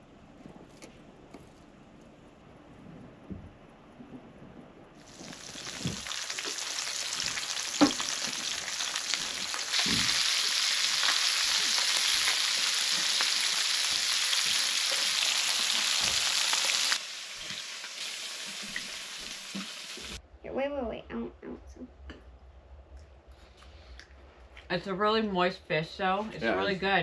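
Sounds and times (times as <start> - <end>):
fish sizzling in a skillet: 5.0 - 20.2.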